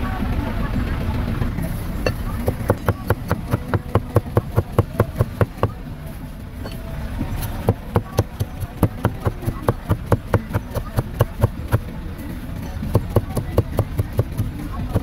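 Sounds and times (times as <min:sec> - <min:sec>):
knife chopping on metal pan: 0:02.1 - 0:05.8, 0:07.6 - 0:11.8, 0:12.9 - 0:15.0.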